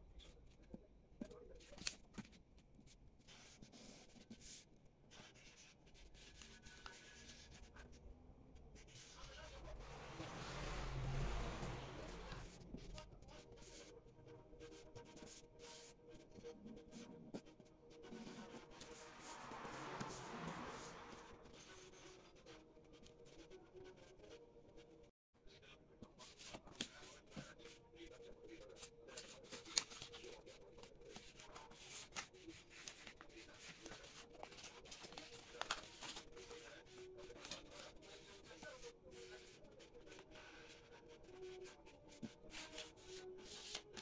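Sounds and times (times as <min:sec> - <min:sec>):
paper rustling and crinkling: 0:01.6 - 0:07.6, 0:28.5 - 0:44.0
paper fold clicks: 0:31.1 - 0:36.6.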